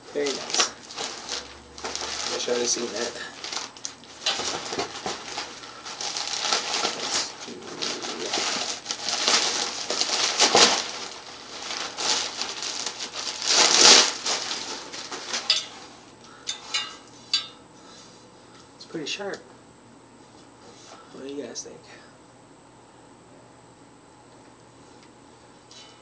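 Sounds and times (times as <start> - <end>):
plastic wrapping crinkling: 0.0 - 15.9.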